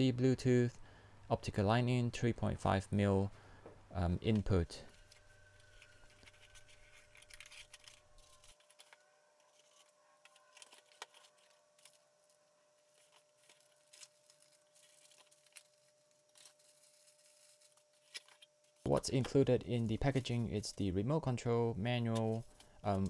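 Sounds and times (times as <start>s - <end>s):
cardboard packaging handled: 4.9s - 20.9s.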